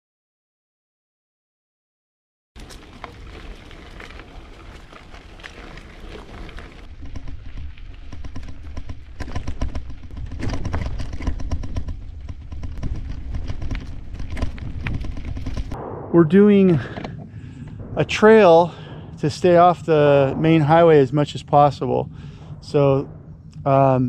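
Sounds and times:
bike tyres crunching on dirt: 0:02.6 - 0:15.8
deep rumble: 0:02.7 - 0:24.0.

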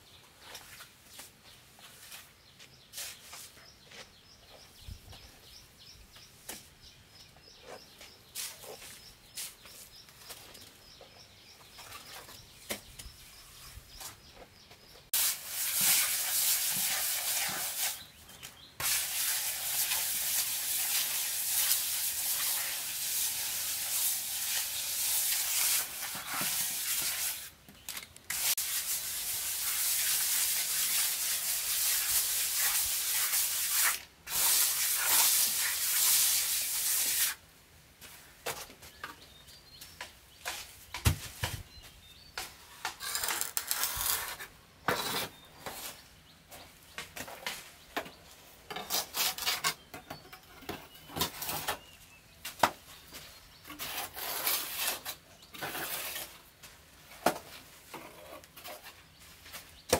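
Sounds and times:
trowel scraping wet cement: 0:15.2 - 0:18.0, 0:18.8 - 0:27.5, 0:28.3 - 0:37.4, 0:42.8 - 0:46.0, 0:48.7 - 0:49.8, 0:53.6 - 0:56.6
shovel scraping in mortar: 0:18.8 - 0:27.5, 0:28.3 - 0:37.4, 0:42.8 - 0:46.0, 0:48.7 - 0:49.8, 0:53.6 - 0:56.5.

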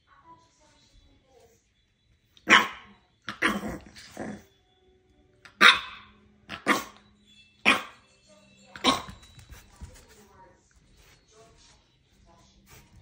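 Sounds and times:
puppy barking: 0:02.4 - 0:04.4, 0:05.4 - 0:07.0, 0:07.6 - 0:08.0, 0:08.7 - 0:09.2.

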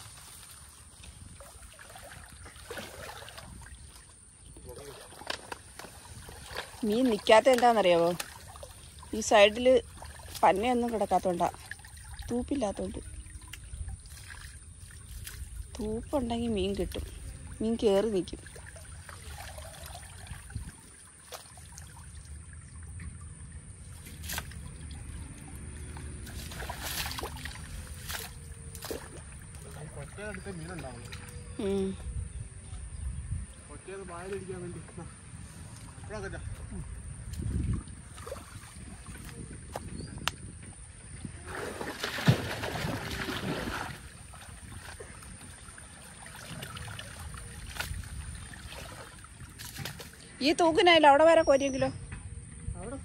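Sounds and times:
water sloshing and splashing: 0:00.0 - 0:31.6, 0:34.2 - 0:50.7
sharp splash: 0:01.4 - 0:04.1, 0:18.4 - 0:22.3, 0:23.9 - 0:25.1, 0:26.2 - 0:29.8, 0:41.4 - 0:50.2.

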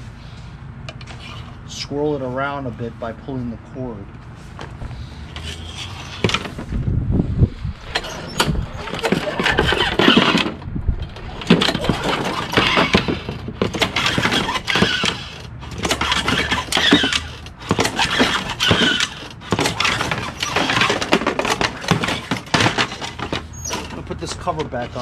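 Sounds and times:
mower engine cranked by pull cord: 0:05.3 - 0:06.7, 0:07.8 - 0:25.0.

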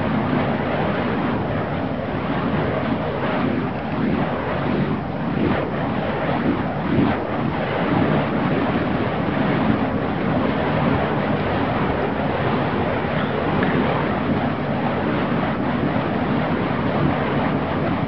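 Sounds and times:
fire poi whooshing: 0:00.0 - 0:18.0.

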